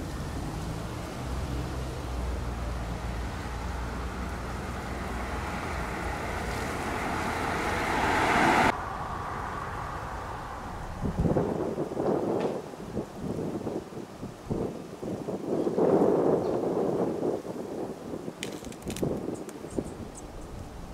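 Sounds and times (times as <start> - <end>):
car approaching on road: 0.0 - 12.0.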